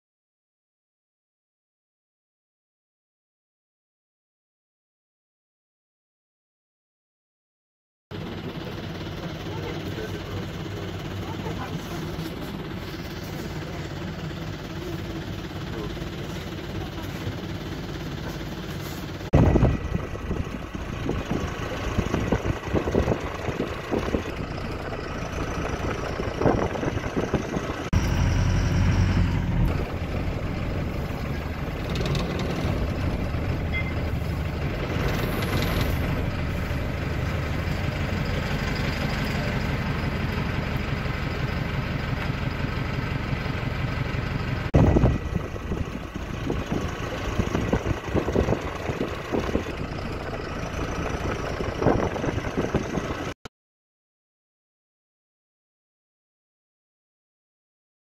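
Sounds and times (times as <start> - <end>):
vehicle engine and road noise: 8.1 - 53.4
wind gusts on microphone: 19.4 - 24.3, 44.8 - 49.7, 51.8 - 53.2.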